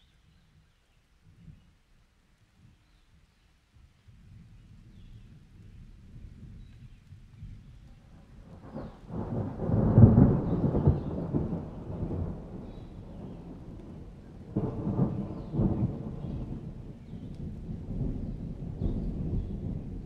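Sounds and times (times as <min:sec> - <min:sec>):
steady rain: 0:00.9 - 0:20.0
thunder rumbling: 0:07.4 - 0:20.0.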